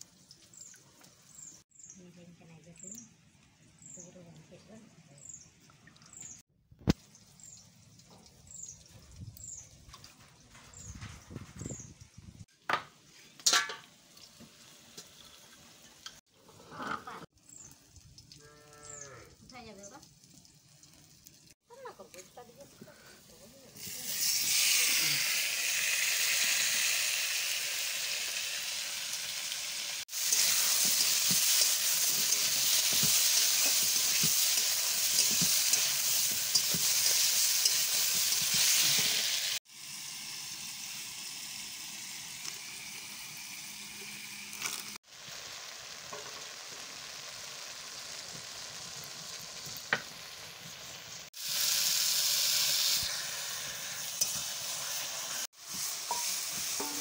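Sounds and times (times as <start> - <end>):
food sizzling in hot oil: 13.2 - 16.5, 17.3 - 57.0
metal spatula scraping pan: 55.7 - 57.0.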